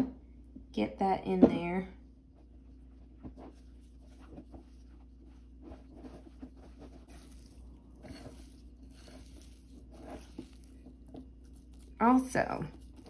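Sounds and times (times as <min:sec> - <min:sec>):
whisk stirring thick dough: 0:03.2 - 0:13.0.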